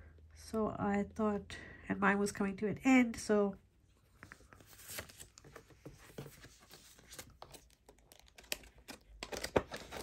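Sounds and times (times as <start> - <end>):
paper crinkling and rustling: 4.2 - 10.0.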